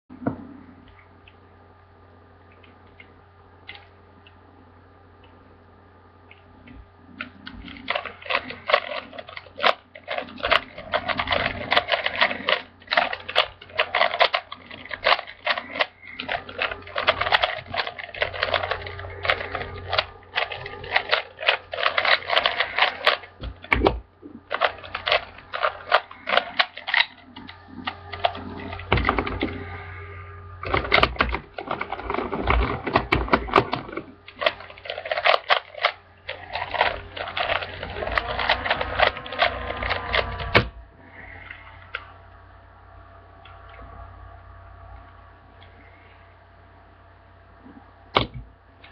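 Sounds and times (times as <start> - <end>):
plastic puzzle cube clacking: 7.1 - 29.7, 30.6 - 40.8.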